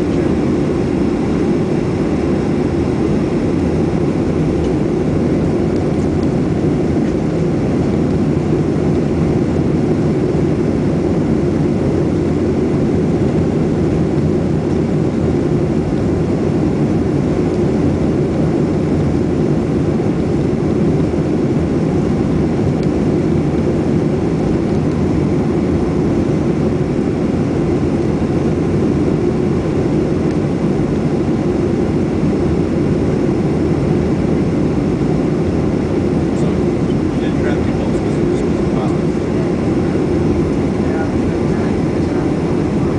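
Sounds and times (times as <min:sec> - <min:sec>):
airliner cabin engine rumble: 0:00.0 - 0:42.9.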